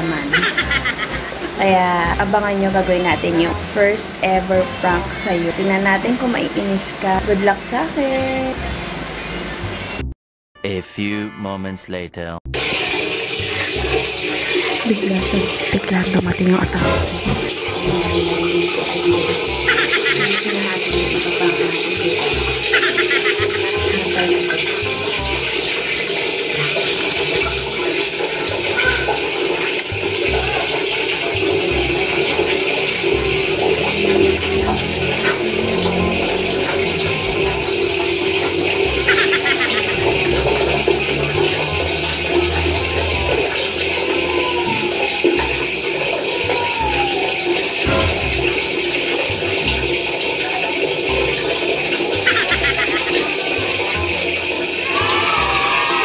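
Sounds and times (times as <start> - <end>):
running water rushing: 0.0 - 10.1, 12.6 - 56.0.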